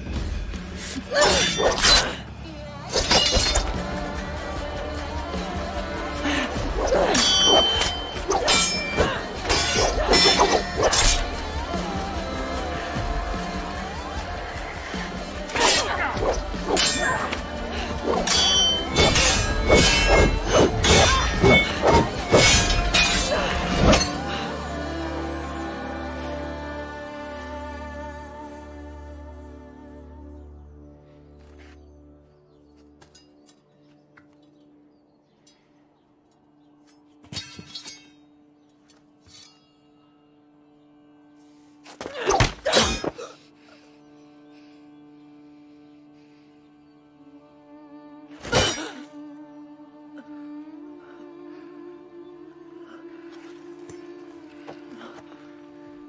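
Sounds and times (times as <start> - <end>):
film score music: 0.0 - 56.0
swords clashing: 1.1 - 2.2, 2.9 - 3.8, 6.9 - 11.4, 15.5 - 24.2, 37.2 - 38.3, 42.0 - 43.3, 48.4 - 49.1.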